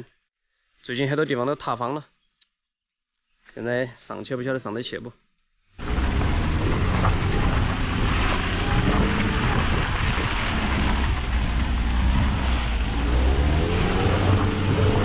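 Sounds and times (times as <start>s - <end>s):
car engine running: 5.8s - 15.0s
tyre and road noise: 5.8s - 15.0s
wind buffeting microphone: 5.8s - 15.0s.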